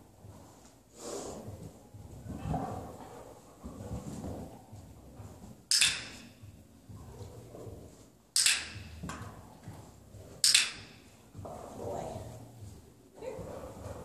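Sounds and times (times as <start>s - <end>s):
dog-training clicker clicks: 8.4s - 8.7s, 10.4s - 10.8s.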